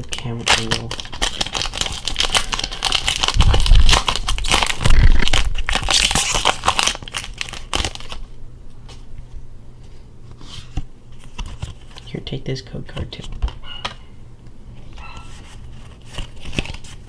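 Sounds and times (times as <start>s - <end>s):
foil wrapper crinkling: 0.0s - 8.3s, 15.0s - 17.0s.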